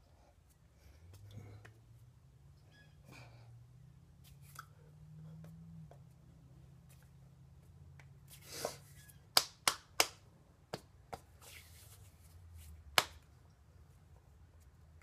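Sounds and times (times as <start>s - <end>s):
sharp hand slaps: 9.3s - 11.2s, 12.9s - 13.3s.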